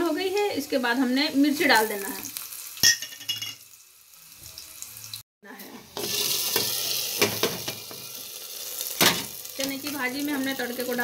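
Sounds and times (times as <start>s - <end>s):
hot oil sizzling in a pot: 0.0s - 11.0s
metal pan clinks: 2.8s - 3.6s.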